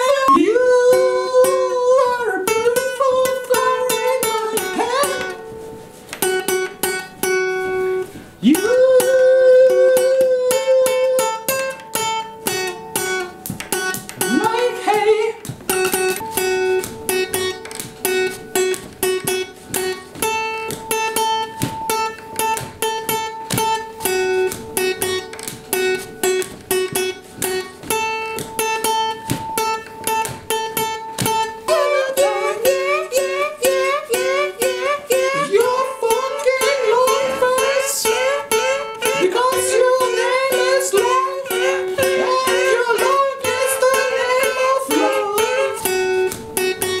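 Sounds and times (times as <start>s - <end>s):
acoustic guitar strumming: 0.0s - 47.0s
blues harmonica playing: 30.8s - 47.0s.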